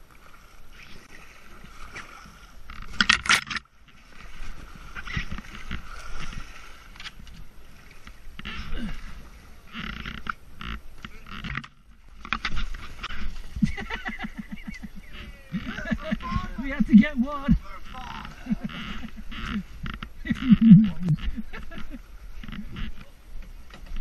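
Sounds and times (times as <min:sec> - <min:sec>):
paddle strokes splashing in water: 0:00.0 - 0:24.0
knocks and scrapes against branches: 0:01.8 - 0:08.7, 0:09.7 - 0:16.8.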